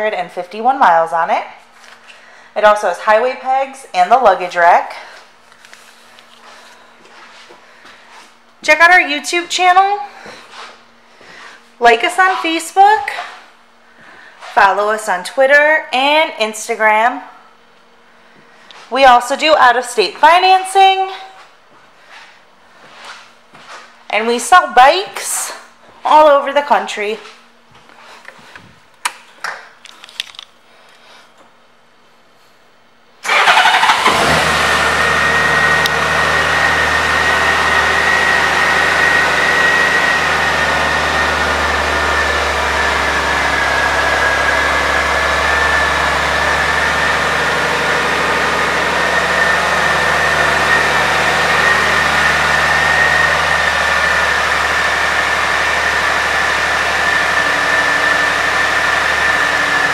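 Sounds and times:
motorcycle engine starting and idling: 33.2s - 59.9s
high whine: 35.0s - 59.9s.

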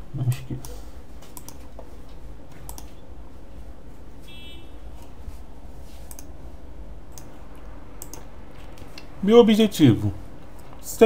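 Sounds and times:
low hum: 0.0s - 11.0s
computer mouse clicks: 0.3s - 3.0s, 6.0s - 6.3s, 7.1s - 9.1s.

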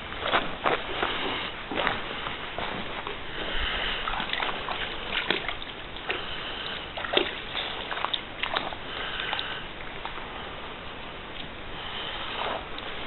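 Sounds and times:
footsteps crackling through brush: 0.0s - 3.7s
creek water running: 0.0s - 13.0s
close breathing: 0.9s - 5.1s, 6.1s - 7.9s, 8.7s - 10.6s, 11.7s - 13.0s.

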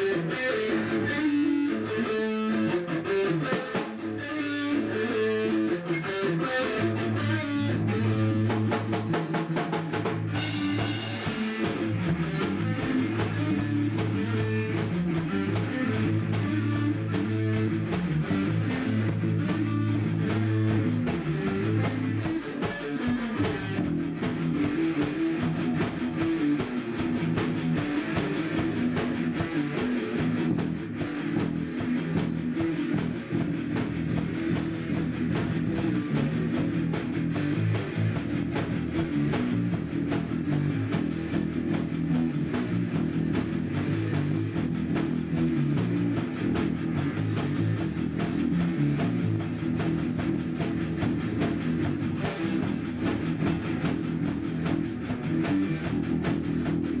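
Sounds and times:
drum kit: 0.0s - 57.0s
electric guitar riff: 0.0s - 57.0s
cymbals: 10.2s - 33.4s.

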